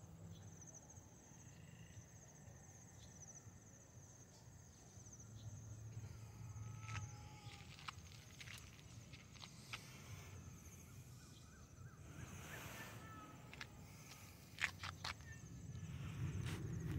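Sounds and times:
low steady rumble: 5.0 - 16.9
faint high chirps: 10.8 - 16.4.

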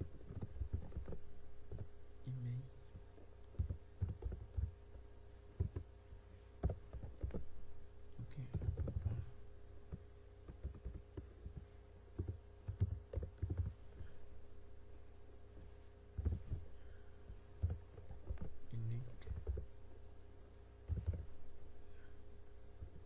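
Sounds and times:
faint steady hum: 0.0 - 23.0
computer keyboard typing: 0.1 - 1.9, 3.5 - 4.8, 6.6 - 7.5, 8.3 - 9.2, 10.4 - 13.8, 16.2 - 16.5, 17.6 - 18.5, 19.2 - 19.7, 20.9 - 21.3.

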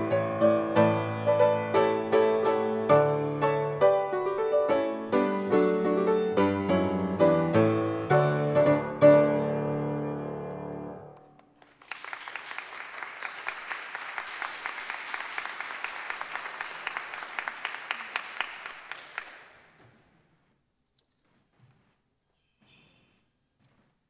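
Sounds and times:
congregation applauding: 11.1 - 19.8.

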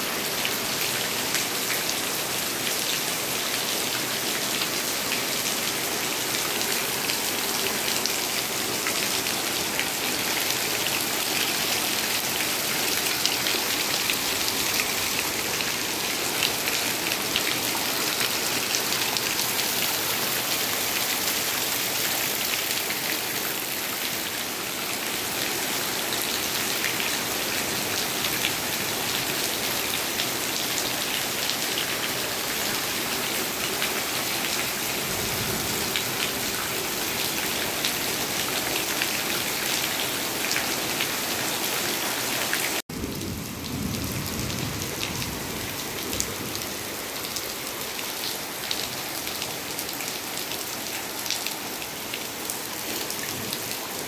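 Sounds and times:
heavy rain pouring: 0.0 - 54.0.

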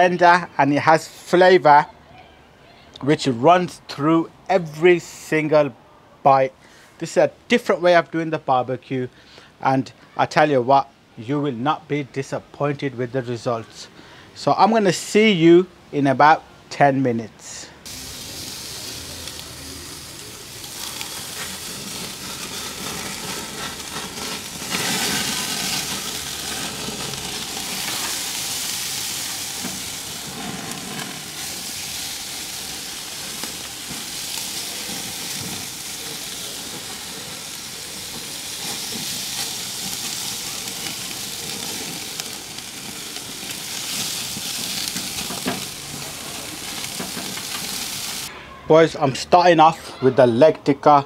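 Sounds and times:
chicken sizzling on a grill: 17.8 - 48.3.

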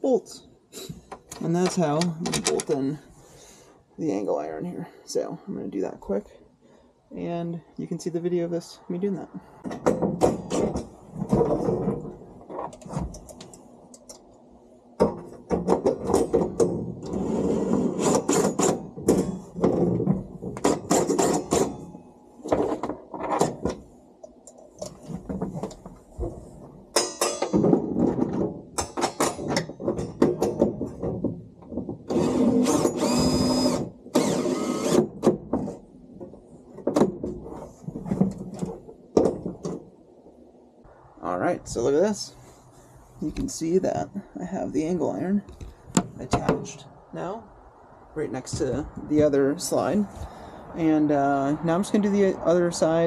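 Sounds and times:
metal clatter: 24.8 - 32.1.

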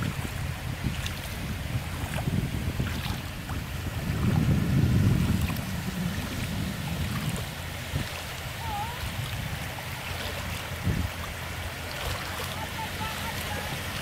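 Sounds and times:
small waves washing on beach: 0.0 - 14.0
low rumble: 1.4 - 9.7.

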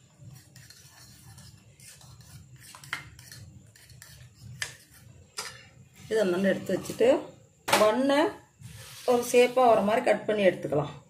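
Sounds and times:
fork scraping eggs in a bowl: 0.0 - 5.7.

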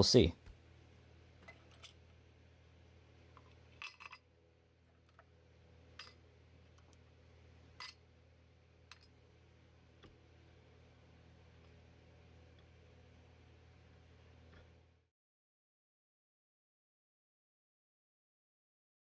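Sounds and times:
low room hum: 0.0 - 15.1.

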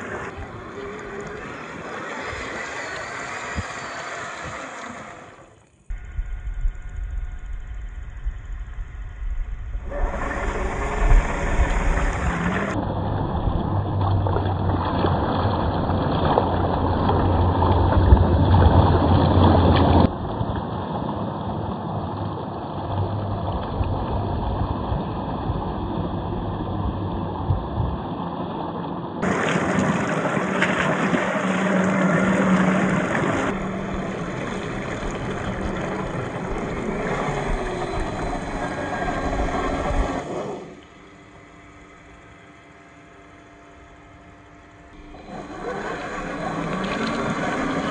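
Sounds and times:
electric motor and gears whining: 0.0 - 20.2, 29.2 - 47.9
splashing and sloshing in mud: 12.0 - 20.6, 29.2 - 40.5, 45.0 - 47.9.

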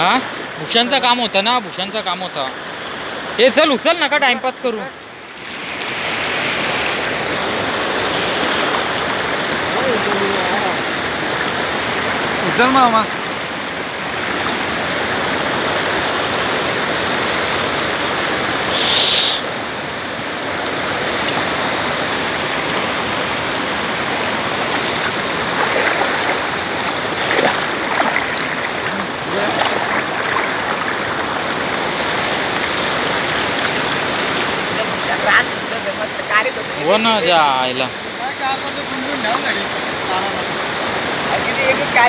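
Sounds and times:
flowing river water: 0.0 - 42.0
water streaming off fishing net: 5.3 - 12.3, 14.1 - 19.6, 20.7 - 35.1
splashing: 21.0 - 36.1.

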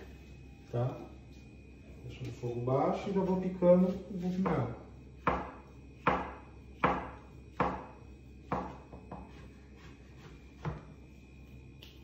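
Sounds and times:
knife knocking on cutting board: 8.5 - 9.3.

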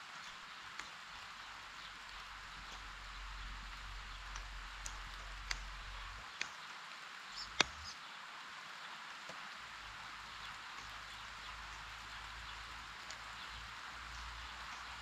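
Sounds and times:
faint bird chirps: 0.0 - 9.0
light rain on foliage: 0.0 - 15.0.

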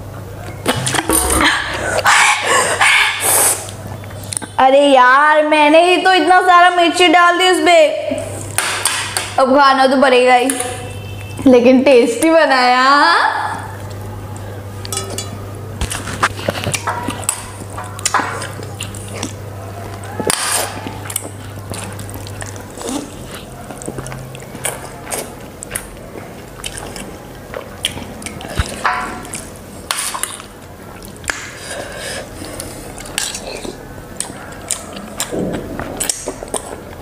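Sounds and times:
cutlery clinking against steel bowl: 14.8 - 18.7
slurping and chewing noodles: 15.8 - 37.0.

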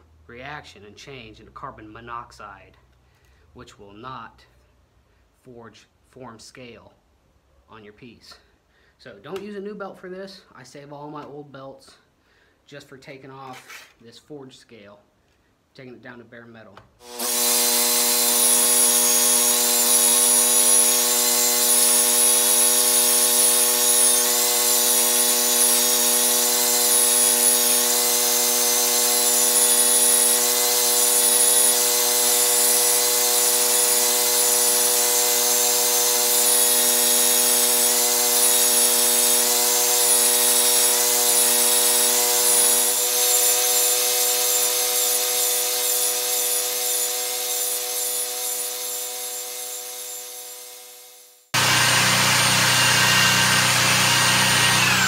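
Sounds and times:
belt sander grinding steel: 17.0 - 55.0.

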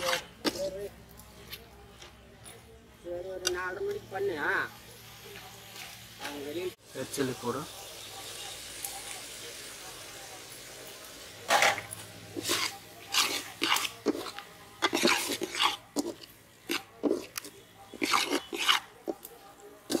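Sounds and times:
ladle scraping metal pot: 0.0 - 0.8, 11.5 - 19.3.

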